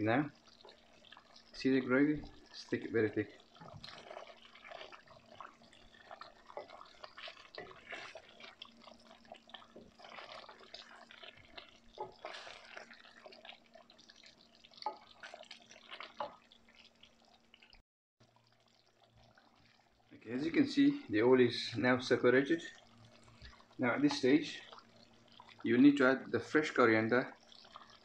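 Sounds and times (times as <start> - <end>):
thick gravy bubbling and popping: 0.0 - 28.0.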